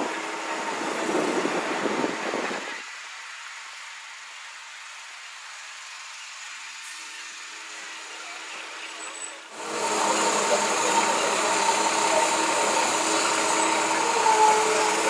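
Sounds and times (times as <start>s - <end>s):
car engine running: 9.6s - 15.0s.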